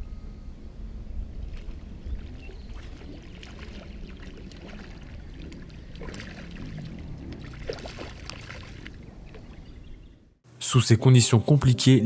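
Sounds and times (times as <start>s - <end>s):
steady low rumble: 0.0s - 10.4s
fish splashing in water: 1.4s - 9.6s.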